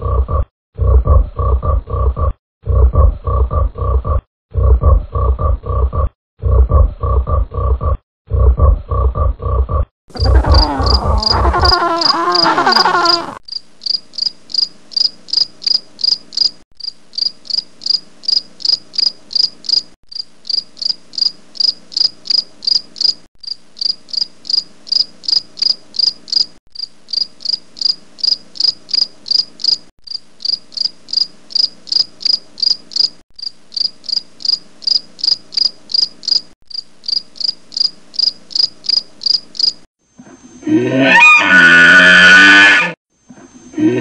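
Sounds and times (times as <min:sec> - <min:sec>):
insect chirping: 0:10.1 - 0:39.9
wavering pitched call: 0:10.2 - 0:13.4.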